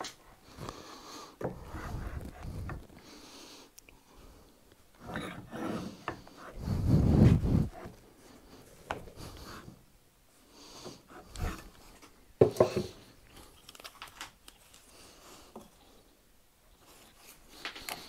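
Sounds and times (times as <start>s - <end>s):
wood knocking and rubbing on wood: 12.4s - 13.0s.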